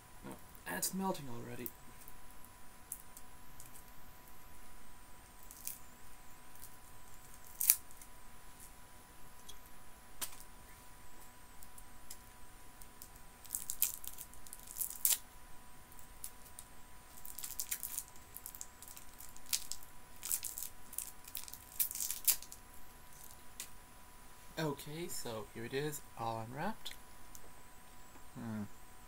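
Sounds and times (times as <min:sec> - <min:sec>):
plastic wrapper crinkling and tearing: 0:05.4 - 0:05.9, 0:06.5 - 0:08.1, 0:12.9 - 0:15.2, 0:15.9 - 0:23.7.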